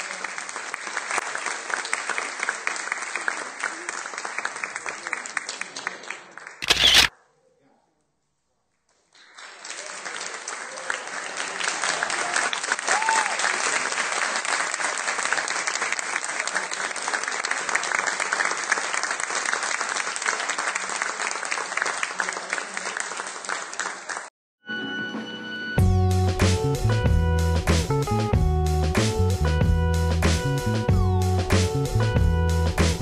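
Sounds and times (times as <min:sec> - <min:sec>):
audience applauding: 0:00.0 - 0:07.0, 0:09.2 - 0:24.3
music: 0:24.6 - 0:33.0.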